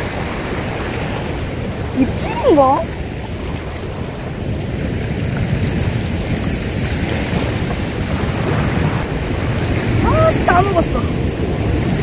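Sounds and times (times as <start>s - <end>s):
small waves washing on beach: 0.0s - 12.0s
wind buffeting microphone: 0.0s - 12.0s
faint high-pitched ticking: 4.8s - 9.4s, 10.1s - 12.0s.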